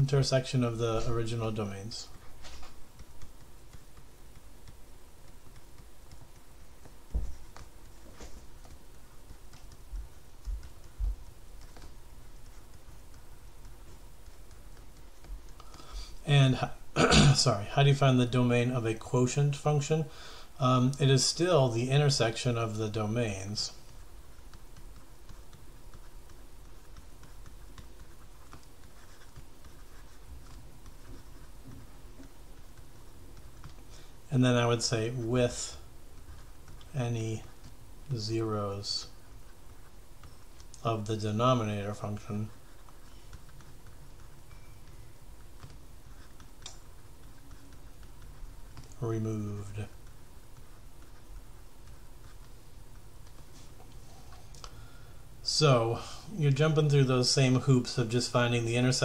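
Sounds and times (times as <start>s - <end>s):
stylus scratching on tablet: 0.0s - 16.9s, 20.6s - 54.5s
stylus ticking on pen tablet: 2.8s - 8.0s, 8.6s - 15.9s, 41.6s - 49.0s.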